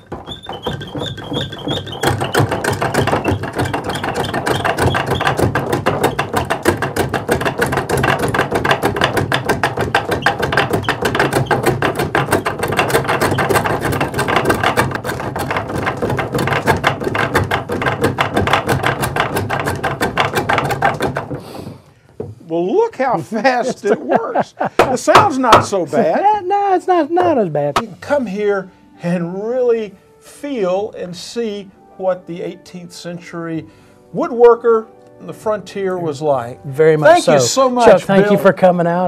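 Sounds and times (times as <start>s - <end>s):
lathe wooden clatter: 0.0s - 21.5s, 24.7s - 25.8s.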